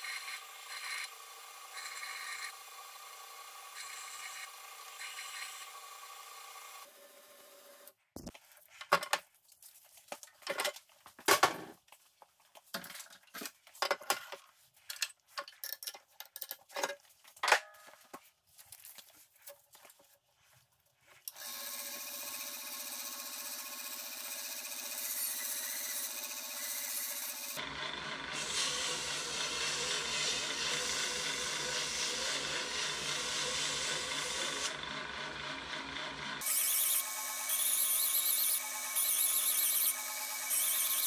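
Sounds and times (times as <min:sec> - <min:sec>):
belt grinder running: 0:00.0 - 0:07.9, 0:21.3 - 0:41.0.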